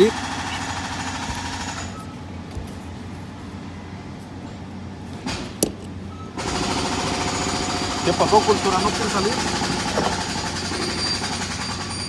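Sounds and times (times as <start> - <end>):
loud machine noise: 0.0 - 2.2, 6.3 - 12.0
low machinery hum: 0.0 - 11.4.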